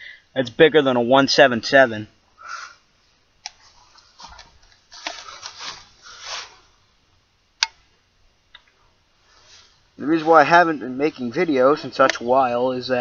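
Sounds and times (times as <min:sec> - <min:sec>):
rifle handling rustles: 0:03.5 - 0:06.7.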